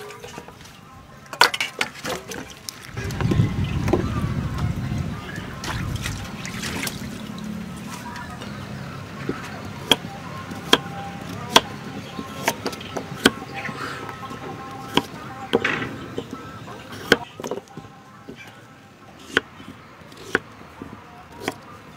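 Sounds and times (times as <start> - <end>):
water sloshing in metal bowl: 1.4 - 3.0, 5.5 - 8.6
knife chopping on wooden block: 14.9 - 17.6, 20.2 - 20.4.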